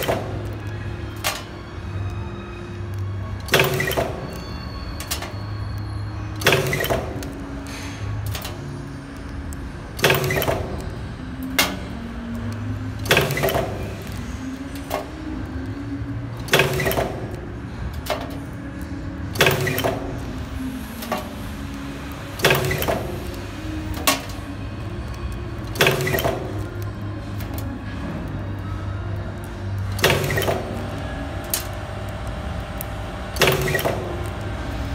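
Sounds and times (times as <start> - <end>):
machine humming: 0.0 - 34.9
loud mechanical clack: 10.0 - 11.9.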